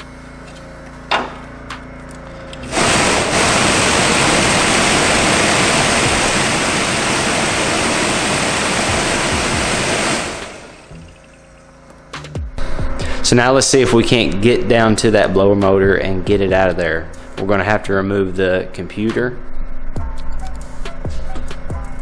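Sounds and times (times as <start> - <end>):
blower motor running: 0.0 - 15.4
rush of air: 2.6 - 11.2.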